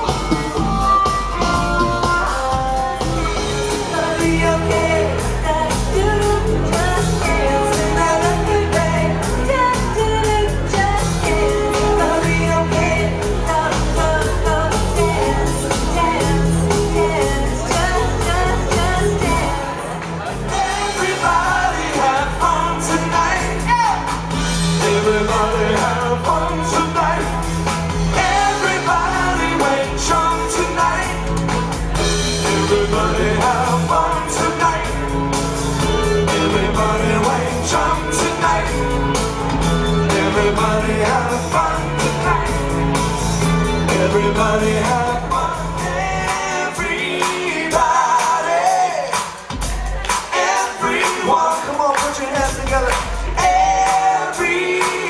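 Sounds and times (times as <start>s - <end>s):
woman singing lead: 0.0s - 24.1s, 35.9s - 43.0s
rock band playing: 0.0s - 55.0s.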